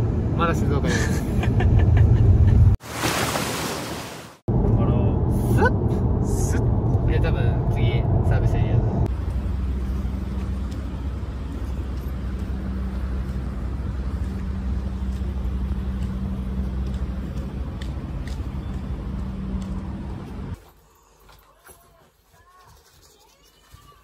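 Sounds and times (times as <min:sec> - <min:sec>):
traffic noise: 0:00.0 - 0:02.8, 0:04.5 - 0:23.9
vehicle engines idling: 0:04.6 - 0:21.6.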